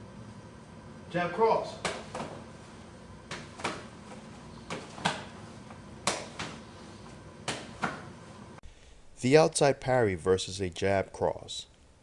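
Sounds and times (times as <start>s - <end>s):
gloved punches slapped by parries: 1.8s - 2.4s, 3.2s - 4.0s, 4.7s - 5.4s, 6.0s - 6.7s, 7.4s - 8.1s.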